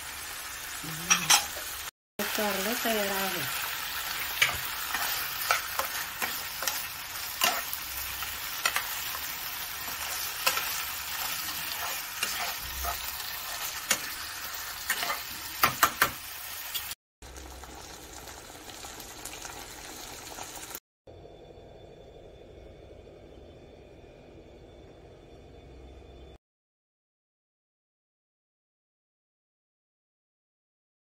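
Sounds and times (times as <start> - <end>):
food sizzling in a pan: 0.0 - 20.8
metal spoon scraping a pan: 1.0 - 1.8, 4.0 - 16.1.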